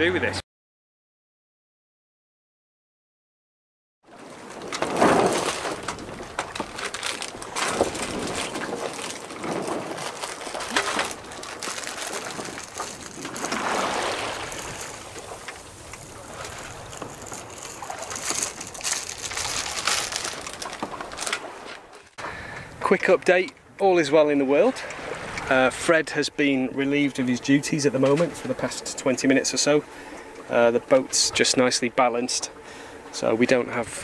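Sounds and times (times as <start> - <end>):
water rushing past a hull: 4.1 - 34.0
wind noise: 4.7 - 21.6.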